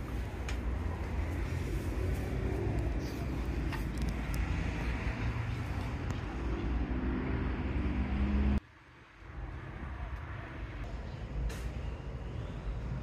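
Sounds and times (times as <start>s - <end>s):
vehicle engine rumbling: 0.0s - 8.6s.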